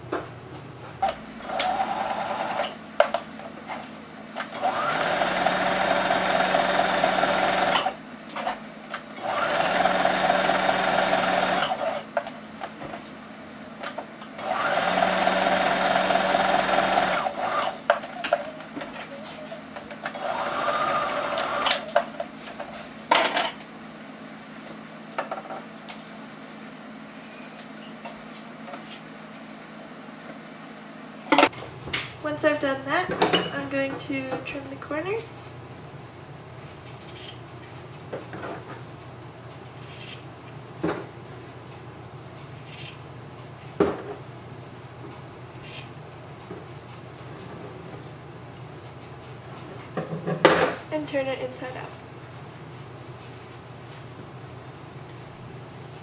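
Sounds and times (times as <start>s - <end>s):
sewing machine stitching: 1.0s - 2.8s, 4.4s - 8.0s, 9.2s - 12.1s, 14.4s - 17.8s, 20.0s - 21.9s.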